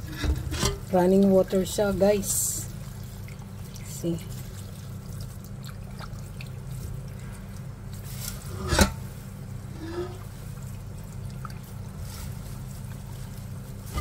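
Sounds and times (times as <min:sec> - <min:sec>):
water running and dripping: 0:00.9 - 0:08.4, 0:09.3 - 0:13.9
leaves tossed in strainer: 0:07.9 - 0:09.3, 0:11.6 - 0:14.0.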